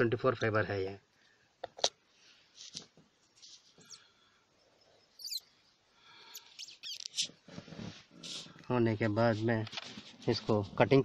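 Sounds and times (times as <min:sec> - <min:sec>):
soft rustles: 0:02.2 - 0:04.0, 0:06.9 - 0:11.0
short high squeak: 0:05.2 - 0:05.5, 0:06.3 - 0:07.4.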